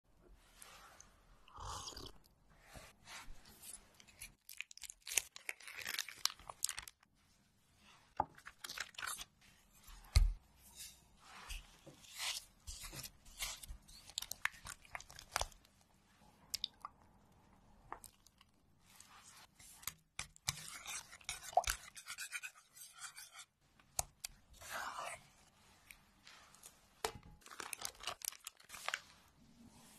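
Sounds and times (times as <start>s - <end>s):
cheese squelching and scraping: 0.3s - 29.9s
crisp crackles and clicks: 4.0s - 7.1s, 13.5s - 15.8s, 27.4s - 29.2s.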